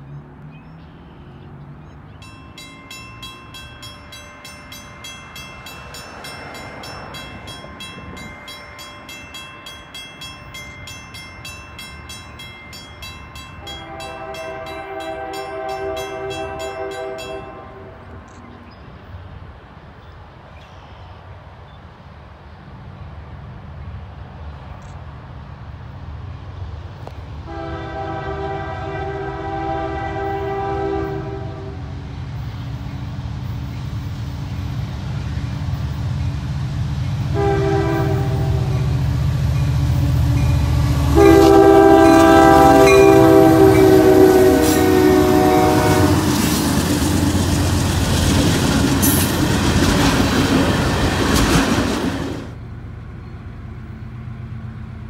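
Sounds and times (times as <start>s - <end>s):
diesel locomotive rumble: 0.0s - 55.0s
train air horn blasts: 13.6s - 18.3s, 27.4s - 32.0s, 37.3s - 39.1s, 39.9s - 46.7s
train wheels clattering over rail joints: 46.2s - 52.6s.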